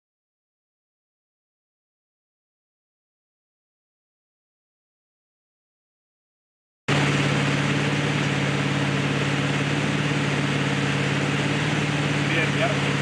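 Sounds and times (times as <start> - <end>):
boat engine humming: 6.9 - 13.0
rushing water of wake: 6.9 - 13.0.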